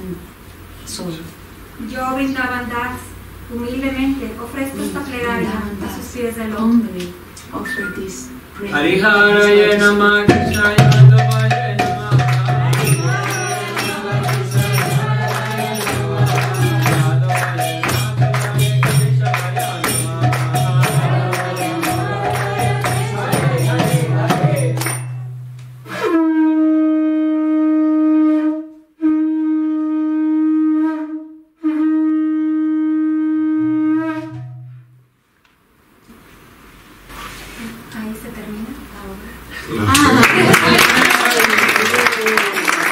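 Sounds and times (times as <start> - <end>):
steady drone: 8.8 - 25.6
jingling hand percussion: 10.3 - 25.6
conch shell blown: 10.4 - 35.1.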